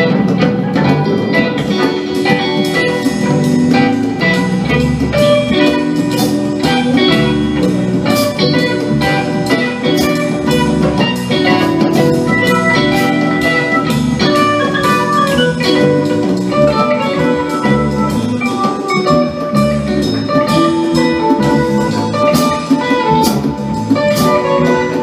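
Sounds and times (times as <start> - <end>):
rock band playing: 0.0 - 25.0.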